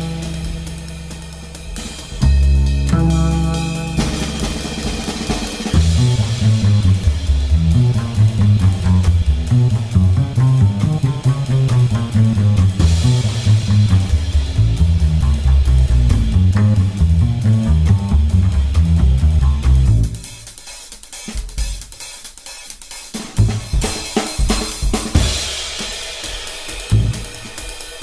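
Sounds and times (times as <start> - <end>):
rock music: 0.0 - 20.2.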